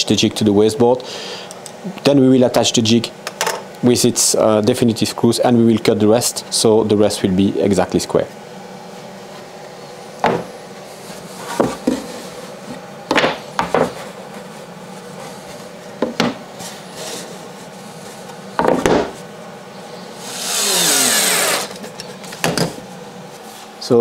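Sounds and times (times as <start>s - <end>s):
boards knocking and sliding: 11.4s - 12.1s, 12.7s - 14.0s
cordless drill running: 20.2s - 21.8s.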